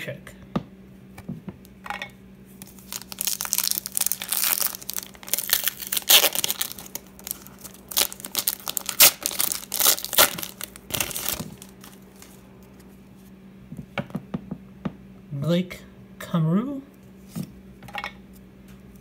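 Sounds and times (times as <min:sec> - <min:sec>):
faint steady hum: 0:00.0 - 0:19.0
wrapper being torn and crinkled: 0:02.6 - 0:12.4.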